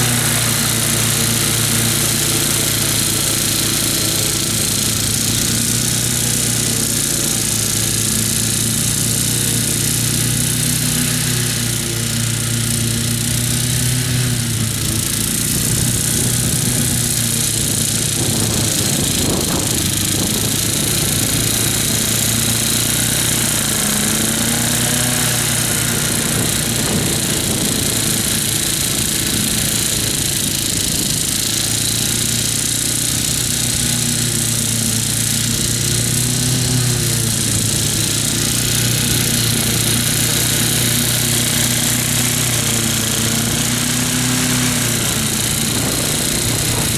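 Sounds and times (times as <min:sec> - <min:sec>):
cutting deck hiss: 0:00.0 - 0:46.9
ride-on mower engine running: 0:00.0 - 0:46.9.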